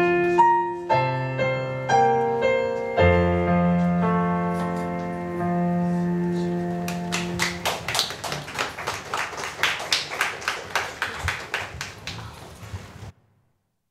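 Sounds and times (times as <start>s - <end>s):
piano chord ringing: 0.0s - 7.7s
congregation applauding: 6.9s - 12.7s.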